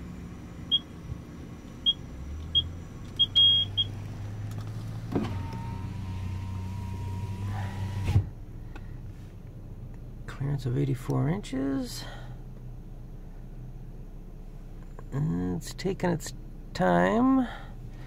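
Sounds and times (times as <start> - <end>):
van engine idling: 0.0 - 18.0
keypad beeps: 1.8 - 3.9
power window motor whining: 2.0 - 8.3.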